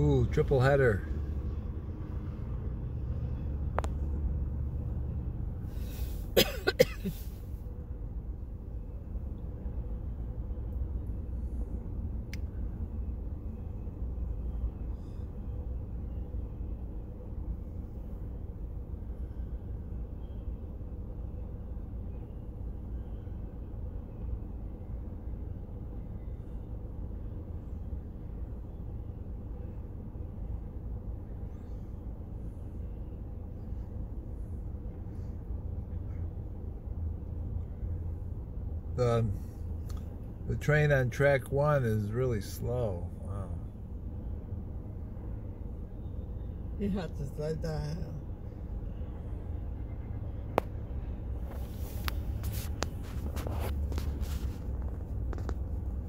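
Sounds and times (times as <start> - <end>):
wheels rumbling on rail: 48.1 - 56.0.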